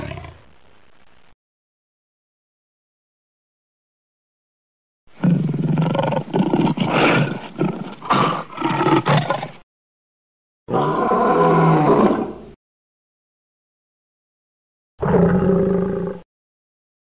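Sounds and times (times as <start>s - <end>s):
lion roaring: 0.0s - 0.4s, 10.7s - 12.4s, 15.0s - 16.2s.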